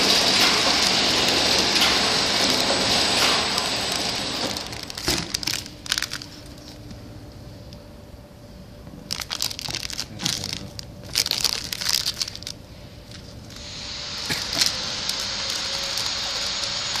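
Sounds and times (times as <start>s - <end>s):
faint steady hum: 2.0s - 17.0s
plastic film crinkling: 2.4s - 6.9s, 9.0s - 17.0s
steady hiss: 12.7s - 17.0s.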